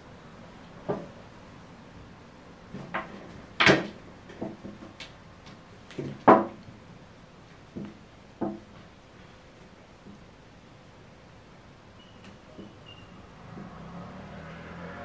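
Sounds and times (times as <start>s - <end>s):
light knocks and bumps: 2.7s - 6.8s, 7.6s - 8.9s, 13.4s - 13.9s.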